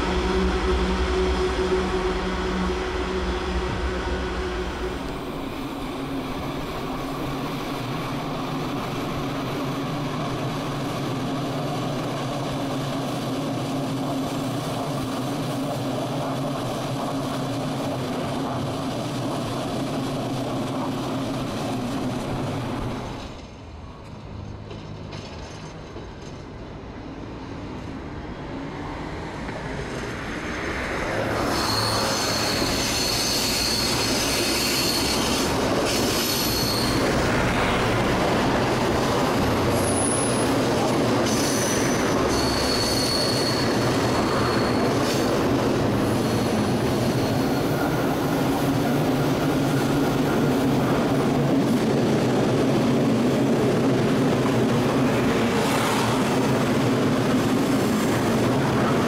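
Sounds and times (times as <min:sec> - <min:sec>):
metro train running past: 0:00.0 - 0:59.0
train wheels squealing: 0:31.1 - 0:37.6, 0:39.3 - 0:51.1.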